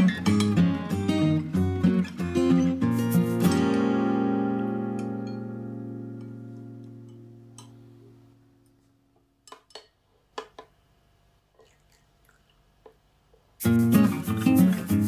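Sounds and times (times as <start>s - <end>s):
acoustic guitar music: 0.0s - 8.8s, 13.6s - 15.0s.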